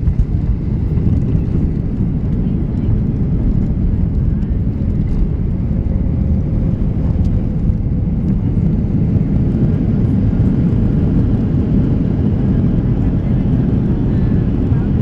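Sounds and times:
jet engines idling rumble: 0.0s - 15.0s.

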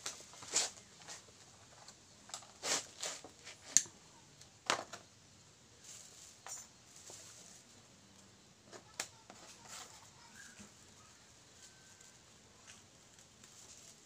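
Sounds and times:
plastic rustling and tapping: 4.6s - 5.1s, 8.7s - 10.8s.

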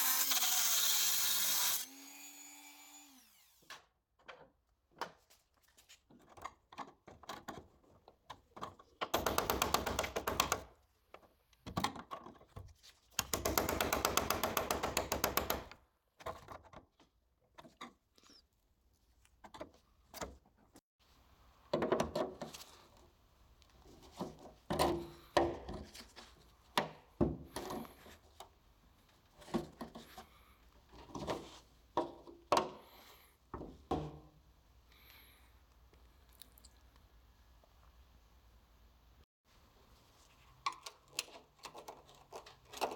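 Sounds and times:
rattling power tool: 0.0s - 3.7s.

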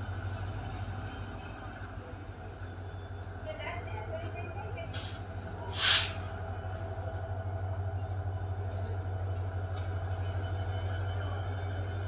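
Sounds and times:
diesel train engine humming: 0.0s - 12.0s
loud hiss: 5.7s - 6.2s.

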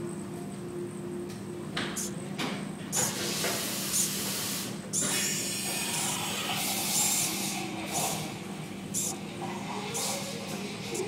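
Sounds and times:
servo motor whirring: 8.9s - 9.2s.

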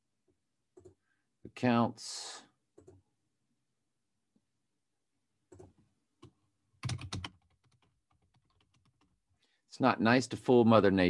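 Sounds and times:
typing on computer keyboard: 6.8s - 9.2s.

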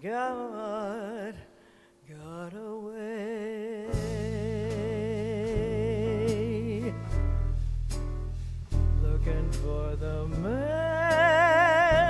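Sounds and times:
jazz trio playing: 3.9s - 12.0s.

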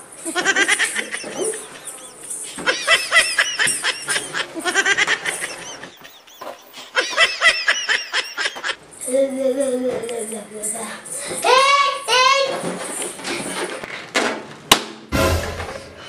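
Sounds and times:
high-pitched giggling: 0.2s - 9.9s.

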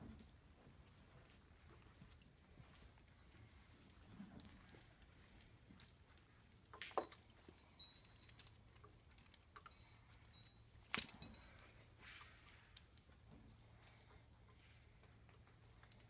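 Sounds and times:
halter hardware clicks and clinks: 6.6s - 16.0s.

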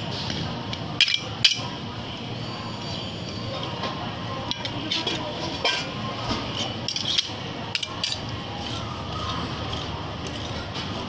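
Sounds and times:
metal spatulas clinking: 4.5s - 6.0s
metal spatulas scraping: 4.5s - 11.0s.

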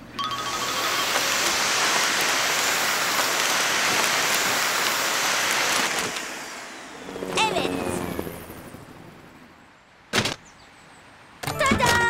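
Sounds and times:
vacuum machine rushing hiss: 0.6s - 7.4s.

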